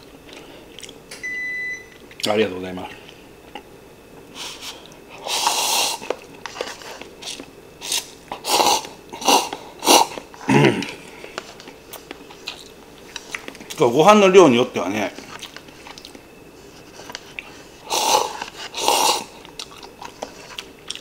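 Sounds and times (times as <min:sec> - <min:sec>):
person chewing: 0:00.3 - 0:01.0, 0:03.5 - 0:13.8, 0:15.2 - 0:21.0
person slurping noodles: 0:04.4 - 0:06.1, 0:07.8 - 0:10.6, 0:17.8 - 0:19.4.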